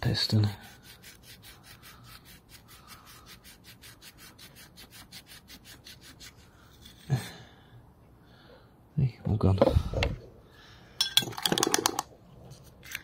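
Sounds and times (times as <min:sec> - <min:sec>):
emery cloth rasping on metal: 0:00.3 - 0:07.1.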